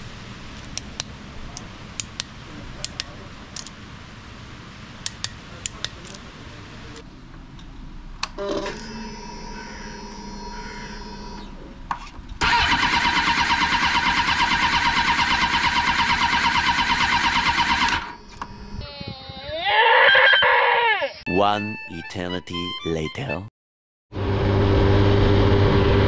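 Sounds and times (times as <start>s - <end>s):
sharp clicks: 0.7s - 3.8s, 5.0s - 6.2s
starter motor whirring: 8.4s - 11.5s, 12.4s - 18.8s
motorcycle engine churning: 12.4s - 18.6s.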